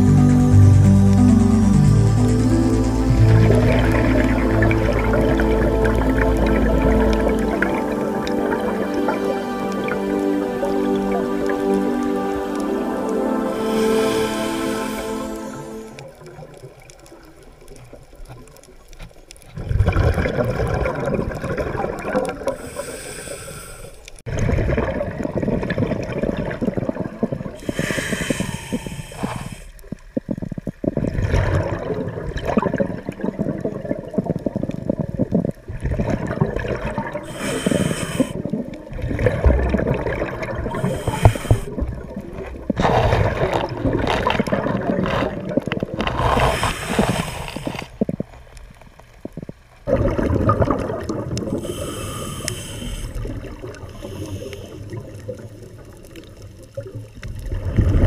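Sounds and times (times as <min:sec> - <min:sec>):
diver exhaling bubbles underwater: 0:19.5 - 0:23.4, 0:24.3 - 0:58.0.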